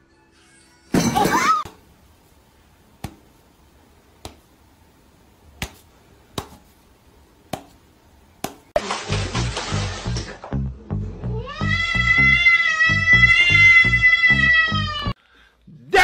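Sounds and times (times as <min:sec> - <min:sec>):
cat crying: 0:11.3 - 0:15.2.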